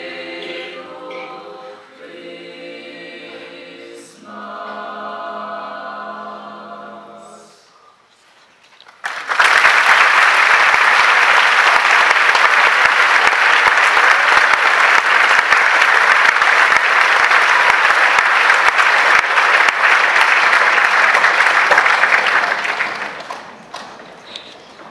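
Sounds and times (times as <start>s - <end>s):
audience applauding: 8.8s - 24.3s.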